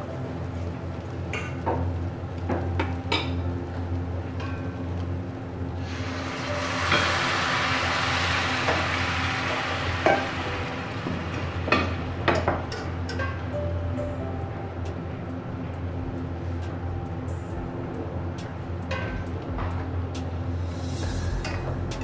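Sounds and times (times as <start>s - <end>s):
water sizzling in hot pan: 0.0s - 13.5s.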